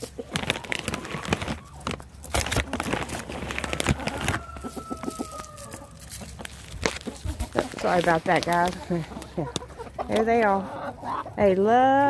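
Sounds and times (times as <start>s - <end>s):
plastic bag crinkling: 0.0s - 9.6s
chickens scratching in dry leaves: 0.0s - 12.0s.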